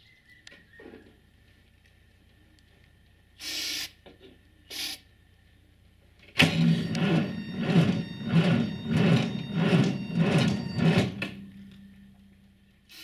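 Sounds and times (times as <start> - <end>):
aerosol can hissing: 3.4 - 3.9
starter cranking tractor engine: 6.3 - 11.6.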